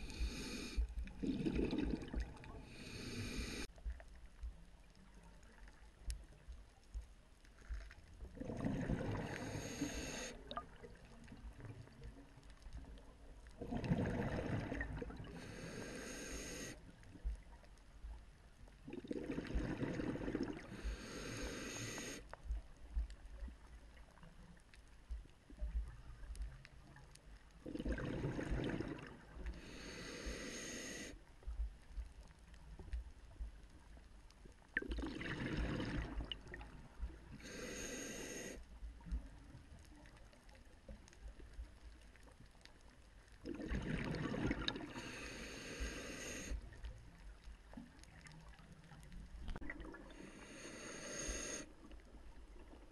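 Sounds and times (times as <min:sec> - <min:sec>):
exhaled bubbles underwater: 0:01.0 - 0:03.5, 0:07.8 - 0:12.1, 0:13.6 - 0:15.7, 0:18.8 - 0:21.2, 0:27.6 - 0:29.6, 0:34.7 - 0:37.6, 0:43.4 - 0:45.2, 0:46.4 - 0:50.6.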